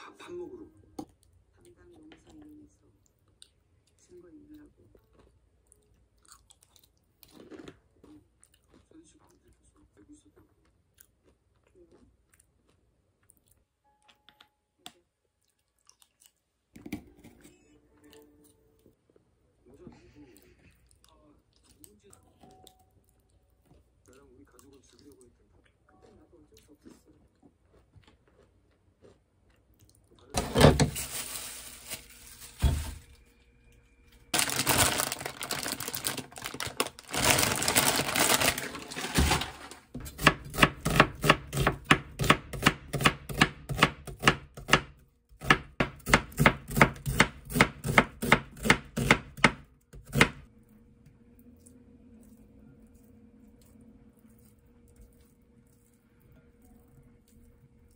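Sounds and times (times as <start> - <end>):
knife chopping on wooden board: 40.0 - 50.4.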